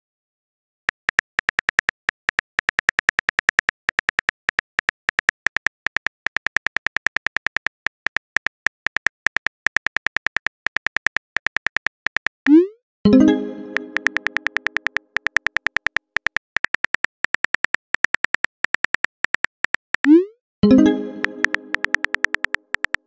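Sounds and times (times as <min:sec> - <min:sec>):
keyboard typing clicks: 0:08.9 - 0:23.0.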